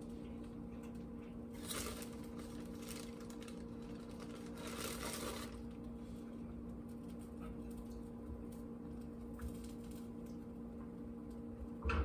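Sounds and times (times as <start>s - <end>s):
steady low hum: 0.0s - 12.0s
plastic bag rustling: 1.6s - 6.2s.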